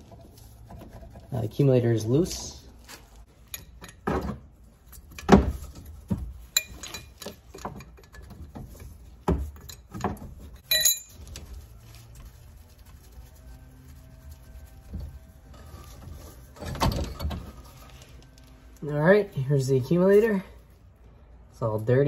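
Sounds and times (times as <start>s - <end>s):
metal parts knocking and clinking: 3.4s - 5.8s, 6.5s - 8.6s, 9.4s - 11.4s
ringing metallic clink: 10.6s - 11.2s.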